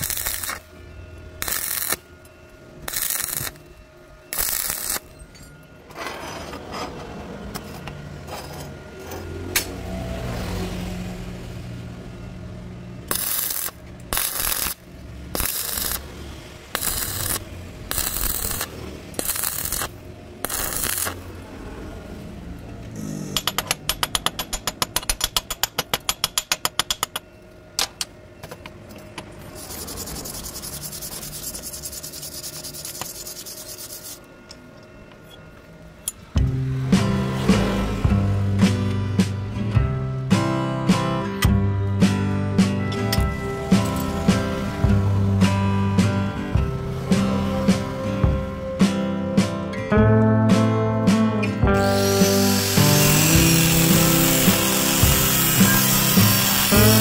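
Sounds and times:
metal scraping with hand tools: 0.0s - 0.7s, 1.4s - 2.0s, 2.9s - 3.6s, 4.3s - 9.4s, 13.1s - 16.0s, 16.7s - 21.3s, 29.4s - 34.6s, 51.7s - 57.0s
steady hiss: 52.1s - 57.0s.

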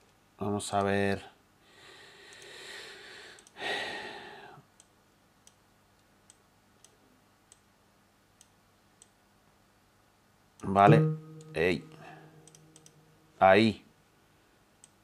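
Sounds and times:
computer mouse clicks: 2.3s - 2.5s, 3.3s - 3.6s, 4.8s - 7.7s, 8.4s - 9.2s, 12.4s - 13.0s, 14.8s - 15.0s.

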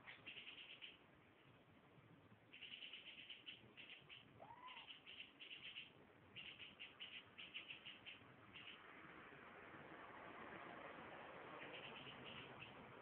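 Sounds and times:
cat mewing: 4.4s - 5.0s.

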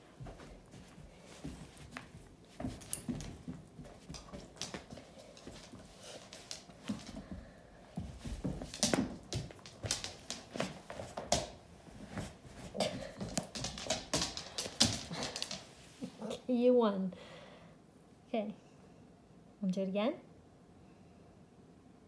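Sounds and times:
dog scuffling: 0.0s - 16.3s
claws clicking on hardwood floor: 0.2s - 16.2s.

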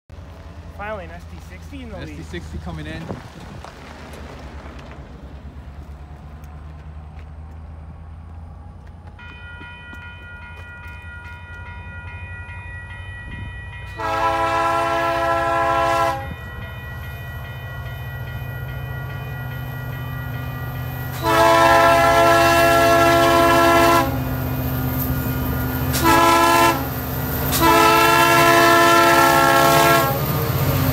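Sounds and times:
diesel locomotive engine rumbling: 0.1s - 30.9s
crossing bell ringing: 9.0s - 30.9s
train air horn blasts: 13.9s - 16.4s, 21.1s - 24.3s, 25.9s - 26.9s, 27.5s - 30.2s.

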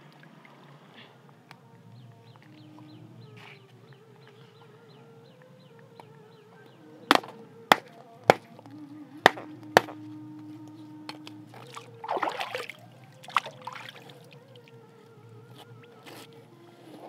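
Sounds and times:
knife chopping on fish: 7.1s - 8.5s, 9.3s - 10.0s.

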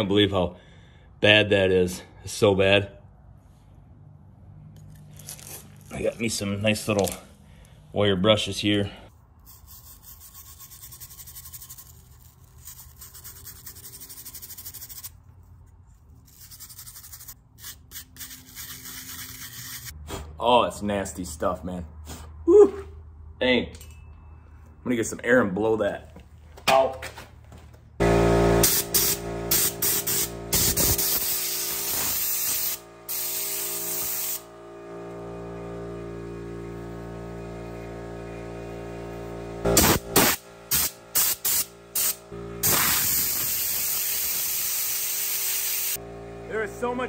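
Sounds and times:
wire brush scrubbing metal screen: 9.4s - 15.1s, 16.2s - 19.9s
compressed air blow gun hissing: 28.7s - 34.5s, 39.8s - 46.0s.

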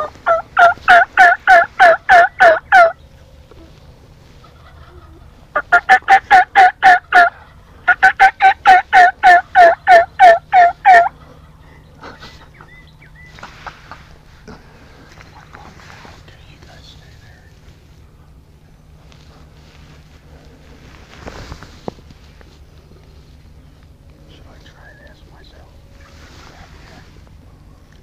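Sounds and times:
turkey yelping: 0.0s - 3.0s, 4.4s - 13.4s.

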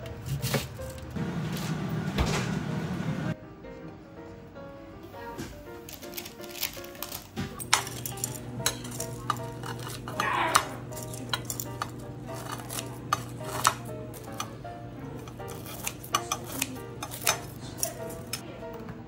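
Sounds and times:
background music: 3.2s - 19.0s
cutlery and dishes clinking: 5.9s - 18.4s.

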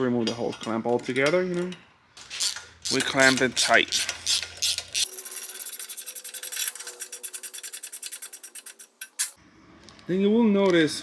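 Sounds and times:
hand ratchet clicking rapidly: 2.3s - 9.4s.

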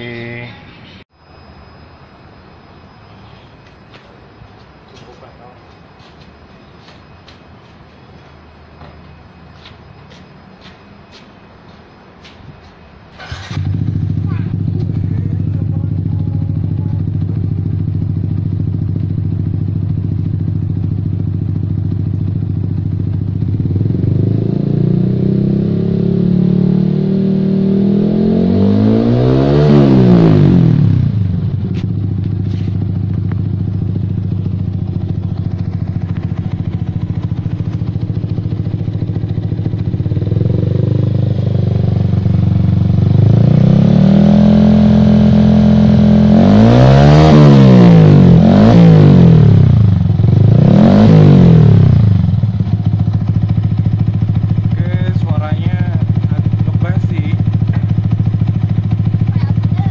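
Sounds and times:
motorcycle engine revving: 13.2s - 59.9s.

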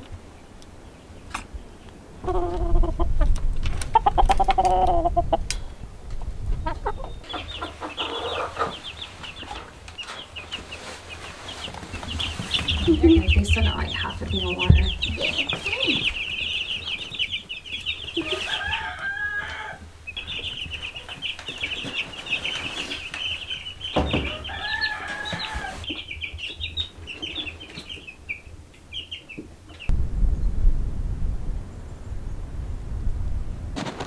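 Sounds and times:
wind rumbling on microphone: 0.0s - 9.1s, 12.0s - 19.0s, 29.9s - 34.0s
chicks peeping: 0.8s - 29.9s.

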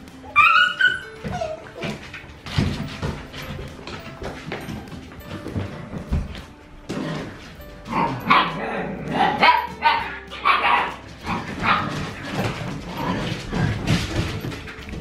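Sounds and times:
puppies yipping and barking: 0.0s - 3.6s, 7.8s - 15.0s.

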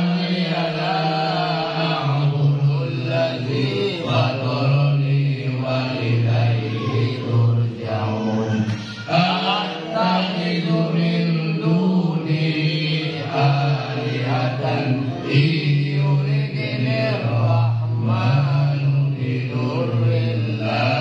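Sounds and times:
men chanting a prayer: 0.0s - 21.0s
lead voice over a microphone: 6.6s - 7.2s.

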